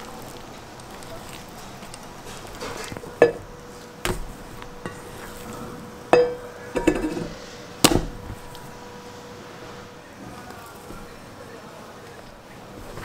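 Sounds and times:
metallic ring: 0:06.1 - 0:07.3
steel bowl knocking: 0:06.1 - 0:07.3.

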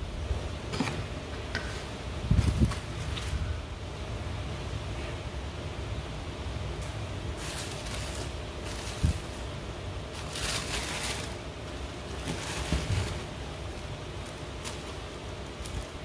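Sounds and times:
tissue paper rustling: 0:07.4 - 0:16.0.

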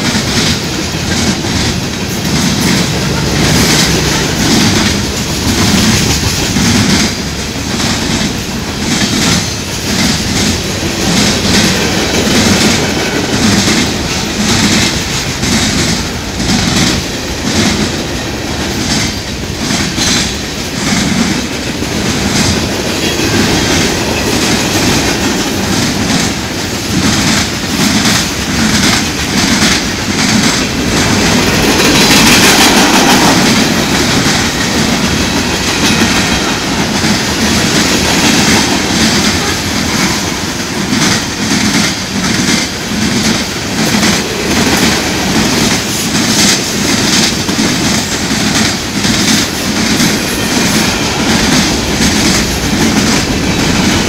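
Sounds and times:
train wheels rumbling: 0:00.0 - 0:54.0
wheels clicking over rail joints: 0:00.0 - 0:54.0.

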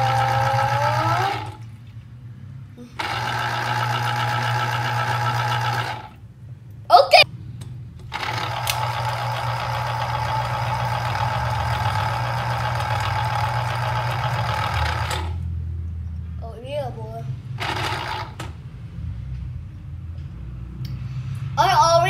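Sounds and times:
citrus juicer motor humming: 0:00.0 - 0:01.8, 0:03.0 - 0:06.2, 0:08.0 - 0:15.4, 0:17.6 - 0:18.5
short high-pitched voice: 0:06.9 - 0:07.3.

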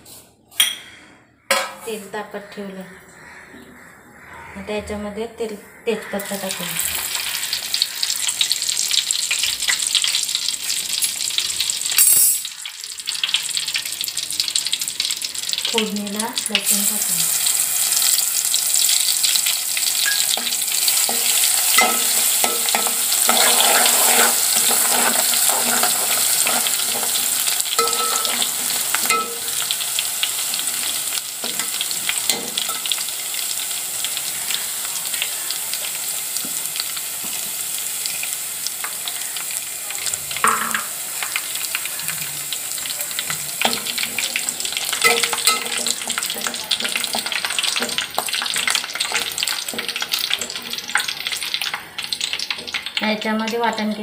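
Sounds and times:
garlic sizzling in hot oil: 0:06.0 - 0:54.0
spoon scraping a metal pot: 0:20.0 - 0:29.7.

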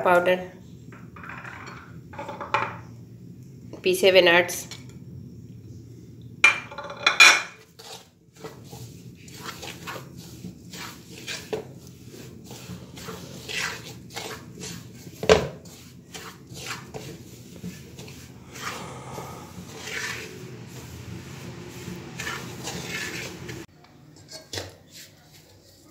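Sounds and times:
wooden spoon scraping metal pan: 0:07.5 - 0:25.9.

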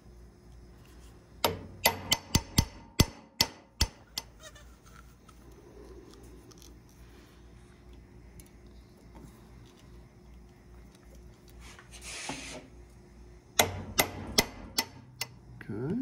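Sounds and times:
hammer tapping metal: 0:01.4 - 0:04.4, 0:13.6 - 0:15.4.

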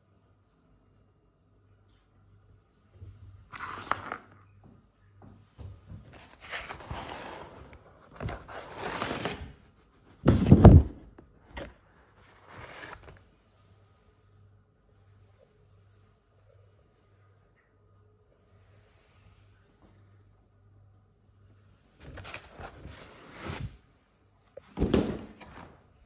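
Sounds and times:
rustling and scraping handling noises: 0:05.4 - 0:14.1, 0:22.0 - 0:23.8.

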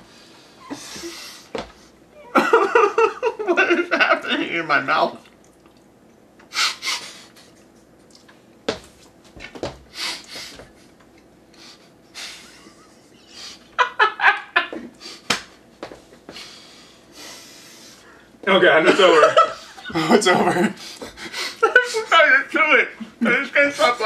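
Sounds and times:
men stifling laughter: 0:02.2 - 0:04.2, 0:12.1 - 0:15.0, 0:18.8 - 0:22.2.

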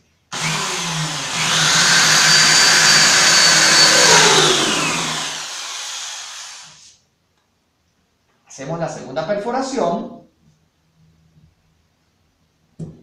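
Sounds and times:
electric drill whining: 0:00.3 - 0:06.9.

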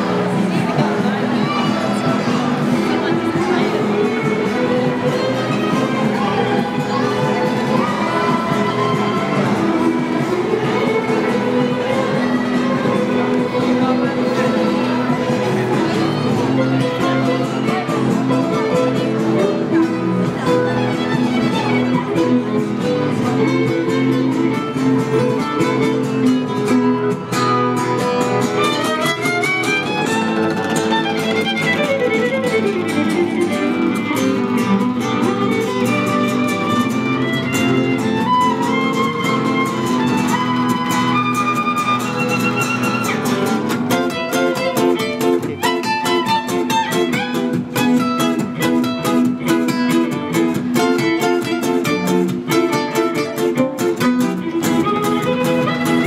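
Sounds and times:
acoustic guitars strumming chords: 0:00.0 - 0:56.0
violin playing melody: 0:28.4 - 0:49.8, 0:51.0 - 0:56.0.

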